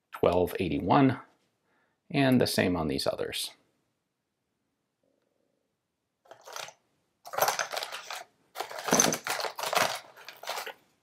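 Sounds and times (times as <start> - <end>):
cardboard and paper rustling: 6.3 - 10.9.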